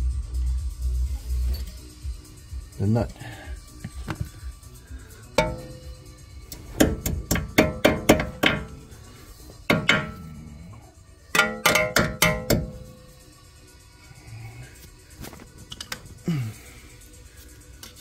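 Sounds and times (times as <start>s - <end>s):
hammer tapping on metal: 5.4s - 5.9s, 6.8s - 8.8s, 9.7s - 10.2s, 11.3s - 12.9s.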